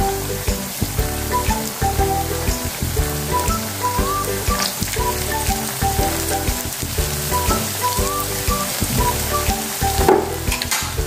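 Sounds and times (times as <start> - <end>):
background music: 0.0 - 11.0
food sizzling in hot oil: 0.0 - 11.0.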